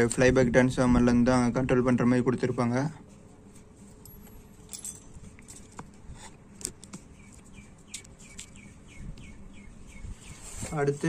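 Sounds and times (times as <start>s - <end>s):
metal parts clicking on concrete: 4.0s - 5.8s
bird chirping: 7.0s - 10.8s.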